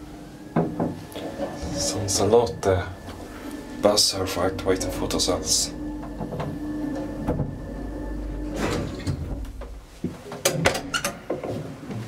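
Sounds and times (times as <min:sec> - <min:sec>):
elevator hum: 0:00.0 - 0:11.5
elevator door clicks and clunks: 0:04.8 - 0:11.6.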